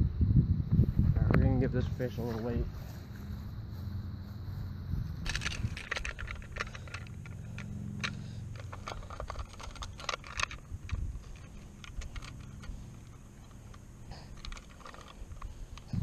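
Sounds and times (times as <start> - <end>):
low rumble: 0.0 - 16.0
fish scale hook rattling: 5.2 - 15.9.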